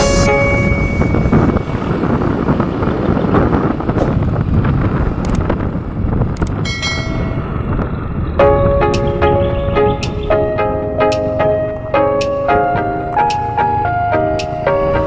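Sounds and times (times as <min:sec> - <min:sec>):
music: 0:00.0 - 0:01.6, 0:08.4 - 0:15.0
motorcycle road and engine noise: 0:00.0 - 0:15.0
wind buffeting microphone: 0:00.0 - 0:15.0.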